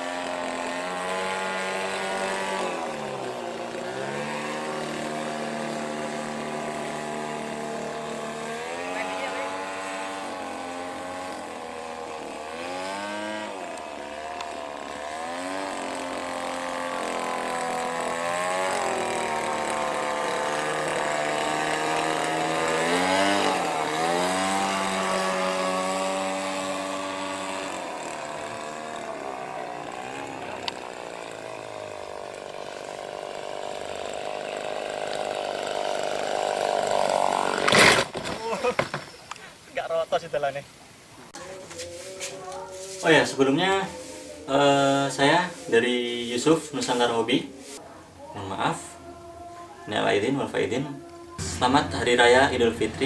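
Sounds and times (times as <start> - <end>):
model airplane engine: 0.0 - 39.4.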